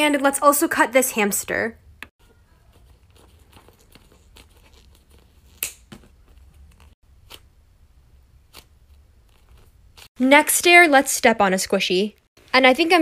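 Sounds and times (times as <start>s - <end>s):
scissors cutting foam: 8.4s - 10.1s.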